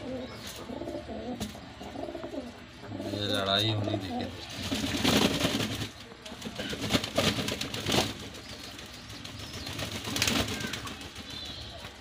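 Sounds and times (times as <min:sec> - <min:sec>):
pigeons cooing: 0:00.0 - 0:05.6
wings flapping: 0:04.4 - 0:12.0.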